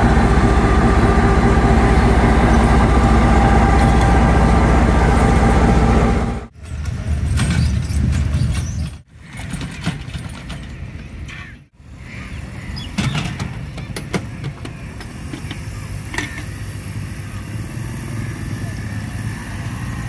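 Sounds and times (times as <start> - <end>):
steady low rumble: 0.0 - 7.4
metal trolley rolling and rattling: 6.5 - 11.3
sharp metal knocks and creaks: 6.6 - 11.4.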